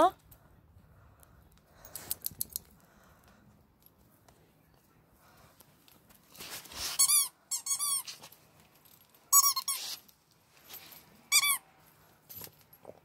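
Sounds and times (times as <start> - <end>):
rubber dog ball squeaking: 7.0 - 8.2, 9.3 - 10.0.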